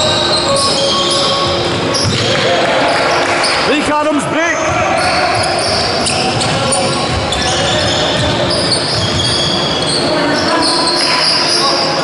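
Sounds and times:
shoes squeaking on floor: 0:00.0 - 0:03.7, 0:04.5 - 0:12.0
sports hall din: 0:00.0 - 0:12.0
basketball bouncing on wooden court: 0:01.4 - 0:02.4, 0:04.6 - 0:10.0.

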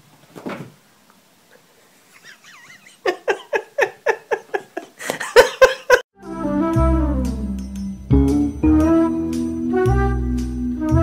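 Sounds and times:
thump of mat flipped over: 0:00.3 - 0:00.8.

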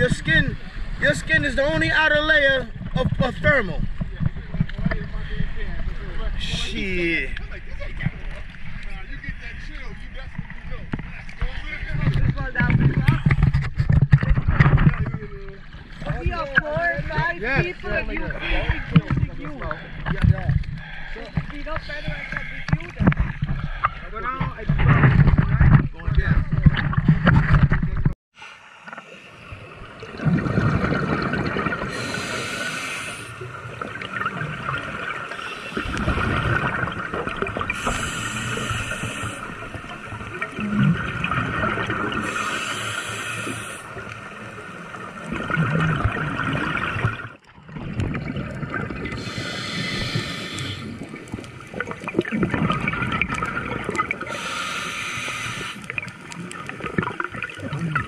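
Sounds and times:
underwater exhalation bubbles: 0:30.0 - 0:32.8, 0:33.4 - 0:44.1, 0:44.9 - 0:55.0, 0:55.6 - 0:58.0
hissing breath through regulator: 0:31.9 - 0:33.4, 0:35.3 - 0:36.2, 0:37.7 - 0:39.7, 0:42.2 - 0:44.1, 0:49.1 - 0:51.1, 0:54.2 - 0:56.0.

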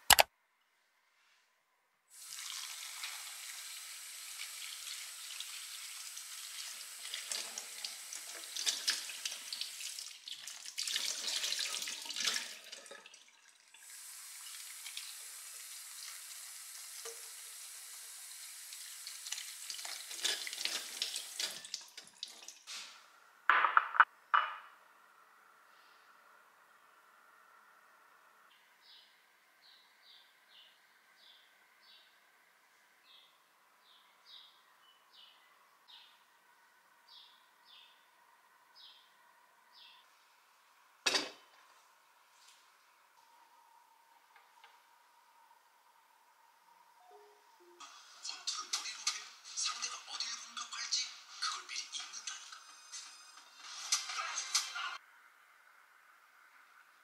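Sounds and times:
sharp click: 0:00.0 - 0:00.3.

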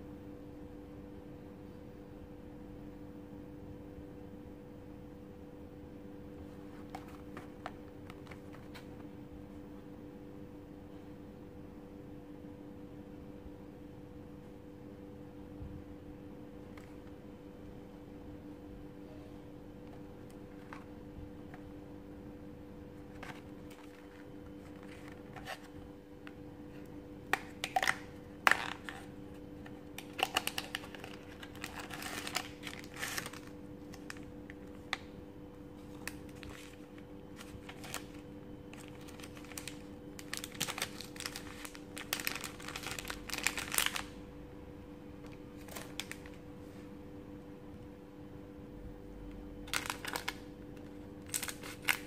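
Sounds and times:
steady low hum: 0:00.0 - 0:52.0
crinkling foil packaging: 0:23.0 - 0:35.1, 0:35.7 - 0:44.2, 0:45.2 - 0:46.4, 0:49.6 - 0:52.0.

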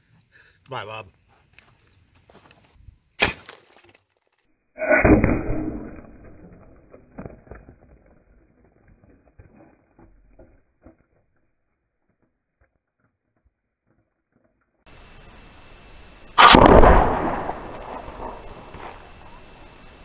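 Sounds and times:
sharp crack: 0:03.2 - 0:04.0, 0:04.8 - 0:08.2, 0:16.3 - 0:19.7
deep drawn-out boom: 0:04.8 - 0:06.9, 0:16.4 - 0:19.1.

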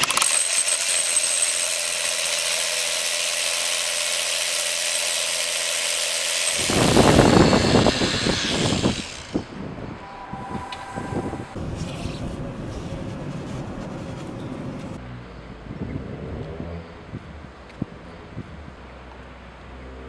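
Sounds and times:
power drill boring into concrete: 0:00.0 - 0:09.5.

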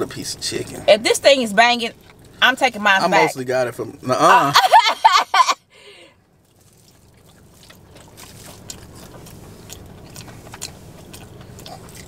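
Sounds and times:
low rumble in car cabin: 0:00.0 - 0:12.0
close-up chewing: 0:06.4 - 0:12.0.

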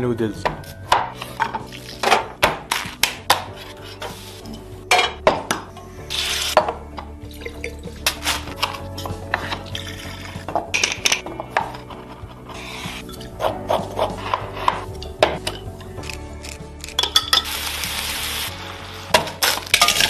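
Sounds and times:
metal pan and utensils clinking: 0:00.4 - 0:05.6, 0:06.2 - 0:12.0, 0:16.9 - 0:17.7, 0:19.1 - 0:20.0
meat sizzling in hot oil: 0:17.2 - 0:19.8.

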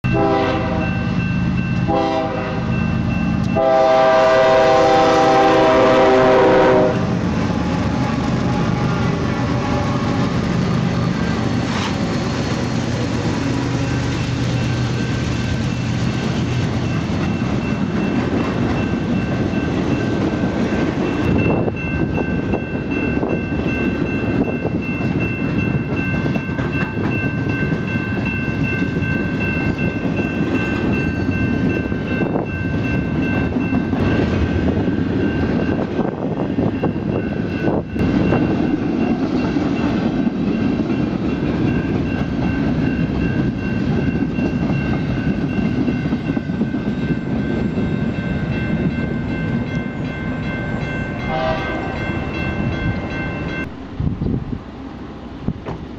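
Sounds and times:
train wheels rumbling on rail: 0:00.0 - 0:55.9
locomotive horn blasts: 0:00.1 - 0:01.0, 0:01.8 - 0:02.8, 0:03.5 - 0:07.2, 0:51.2 - 0:52.2
high ringing tone: 0:40.5 - 0:53.8.

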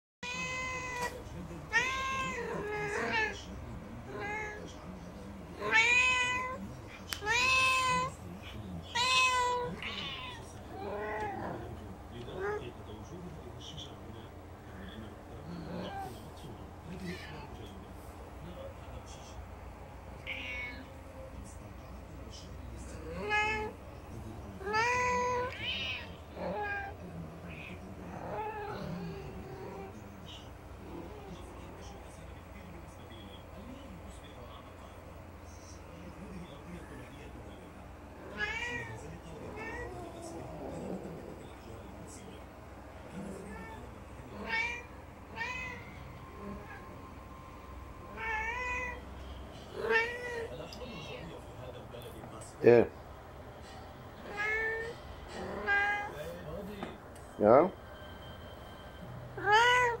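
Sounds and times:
cats meowing: 0:00.2 - 0:13.2, 0:15.4 - 0:16.3, 0:16.9 - 0:17.8, 0:20.2 - 0:21.4, 0:22.6 - 0:23.8, 0:24.5 - 0:31.6, 0:38.2 - 0:41.9, 0:43.1 - 0:46.9, 0:48.0 - 0:51.4, 0:54.2 - 0:56.8, 0:59.3 - 1:00.0.

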